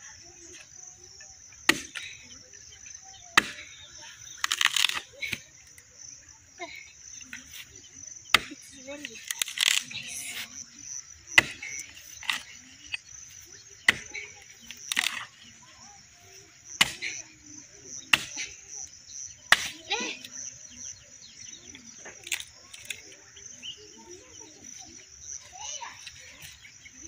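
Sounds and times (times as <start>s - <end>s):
axe striking log: 1.7s - 2.0s, 3.4s - 3.7s, 8.3s - 8.5s, 11.4s - 12.4s, 13.9s - 14.2s, 16.8s - 17.2s, 18.1s - 18.4s, 19.5s - 19.8s.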